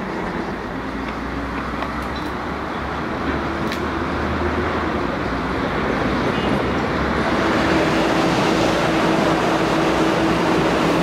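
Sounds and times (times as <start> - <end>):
bus engine humming: 0.0 - 11.0
electric train approaching: 0.0 - 11.0
road and rail traffic rumble: 0.0 - 11.0.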